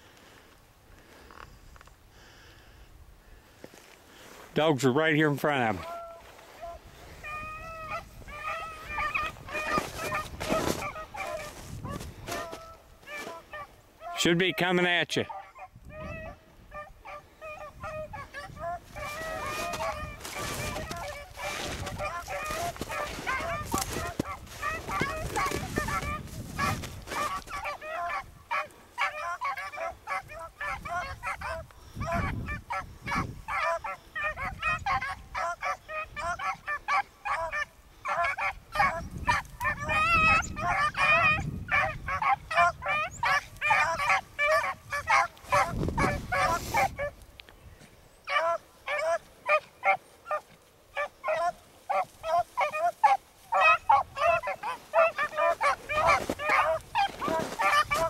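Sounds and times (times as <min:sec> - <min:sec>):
beagles baying in chorus: 0:05.0 - 0:47.2, 0:48.1 - 0:58.0
wind buffeting microphone: 0:06.8 - 0:12.5, 0:15.6 - 0:16.7, 0:17.7 - 0:27.5, 0:30.7 - 0:33.5, 0:38.6 - 0:47.8.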